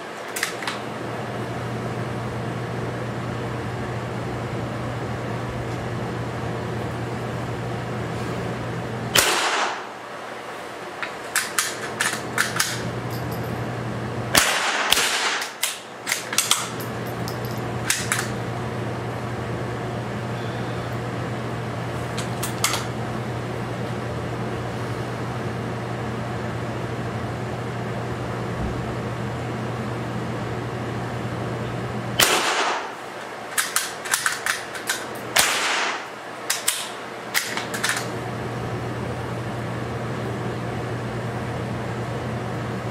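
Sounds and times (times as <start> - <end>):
low hum: 0.9 - 41.6
rifle shots ringing indoors: 9.1 - 10.1, 14.3 - 16.8, 32.2 - 38.1.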